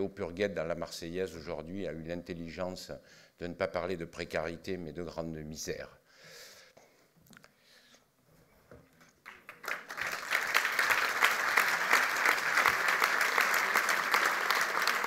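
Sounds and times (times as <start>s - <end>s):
audience applause: 9.2s - 15.0s.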